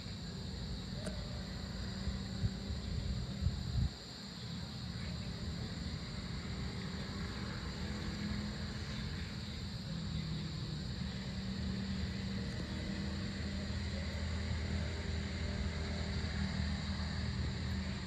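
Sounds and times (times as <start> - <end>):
distant vehicle engines rumbling: 0.0 - 18.0
high-pitched insect drone: 0.0 - 18.0.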